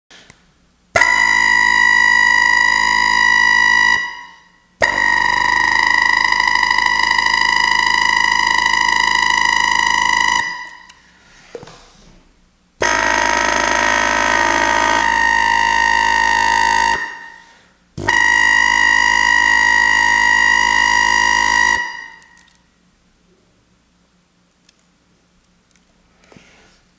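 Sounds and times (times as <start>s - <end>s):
loud horn blasts: 1.0s - 11.0s, 12.8s - 22.6s.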